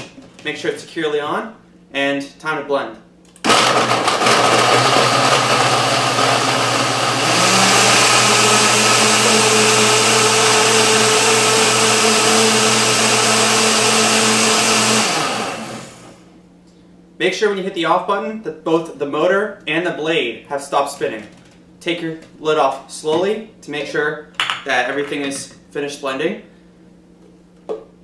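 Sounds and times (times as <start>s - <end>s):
blender running: 3.4s - 16.3s.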